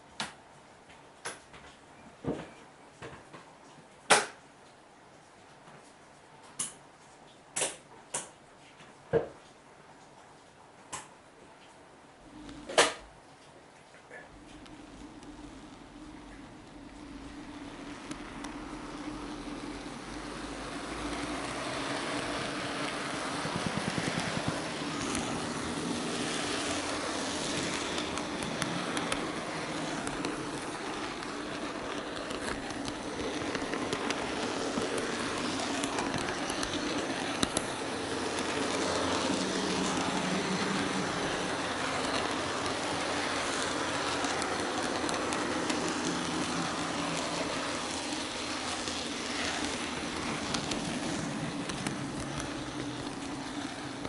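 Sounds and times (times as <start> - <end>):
wheels clicking over rail joints: 12.2 - 13.6, 14.2 - 54.0
small motor hum: 14.3 - 54.0.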